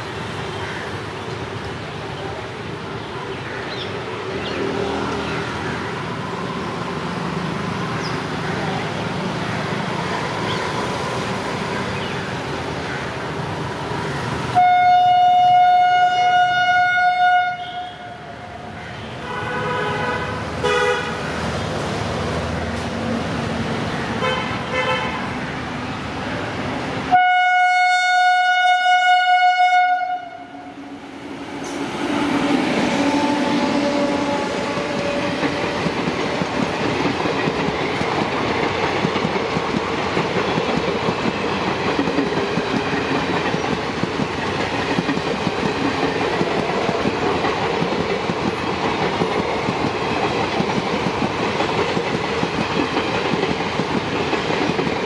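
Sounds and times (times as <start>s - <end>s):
coaches rail noise: 0.0s - 55.0s
train running noise: 0.0s - 55.0s
train horn blasts: 14.6s - 18.2s, 19.2s - 21.2s, 24.2s - 25.2s, 27.1s - 30.8s, 32.2s - 35.4s.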